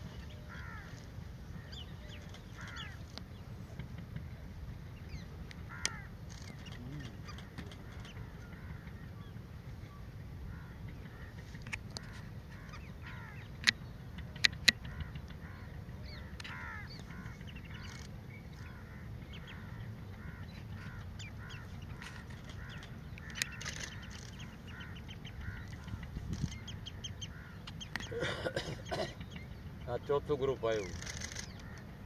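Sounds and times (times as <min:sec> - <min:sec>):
flock of birds calling: 0:00.0 - 0:03.5, 0:04.9 - 0:32.0
low steady rumble: 0:00.0 - 0:32.0
sharp clicks: 0:13.6 - 0:15.0, 0:22.0 - 0:24.4, 0:30.8 - 0:31.9.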